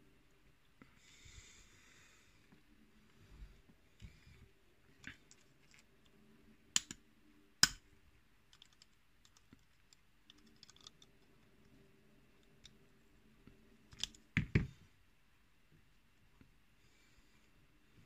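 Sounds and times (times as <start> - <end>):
small metal clicks: 8.5 - 11.2.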